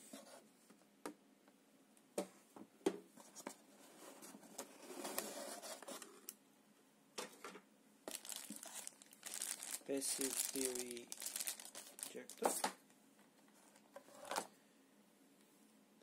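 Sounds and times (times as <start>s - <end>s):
cardboard scraping and rustling: 3.2s - 6.1s.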